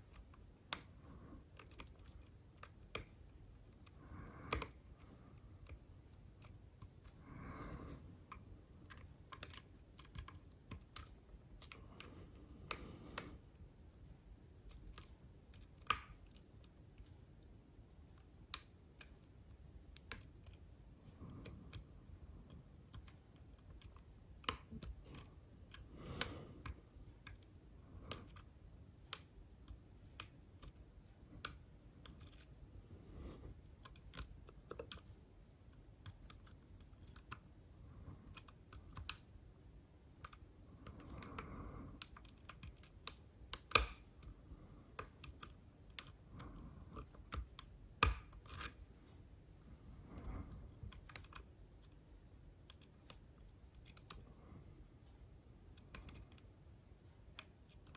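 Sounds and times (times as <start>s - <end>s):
lock pick clicking and scraping: 0.0s - 13.4s, 31.4s - 32.6s, 40.2s - 44.1s, 44.9s - 48.8s, 50.2s - 52.0s, 52.6s - 54.3s.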